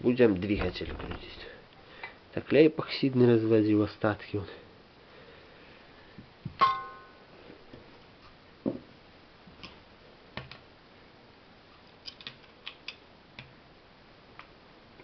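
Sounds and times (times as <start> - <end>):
small parts clicking: 12.0 - 13.5.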